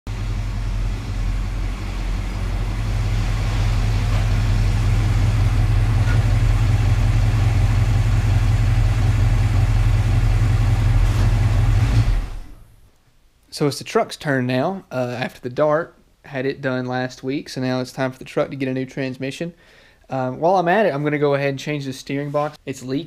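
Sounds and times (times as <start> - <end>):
pickup truck engine running: 0.1 - 12.7.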